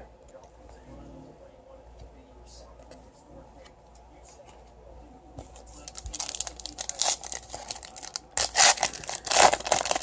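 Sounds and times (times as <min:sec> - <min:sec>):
foil pack crinkling: 0:05.8 - 0:10.0
foil pack ripping open: 0:06.1 - 0:10.0.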